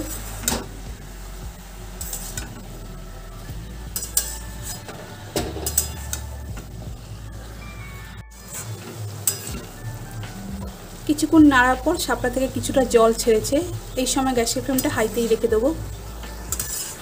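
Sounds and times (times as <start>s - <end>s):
light sizzle of frying: 0.0s - 17.0s
metal spatula scraping a pan: 2.0s - 6.8s, 8.3s - 10.0s, 13.8s - 17.0s.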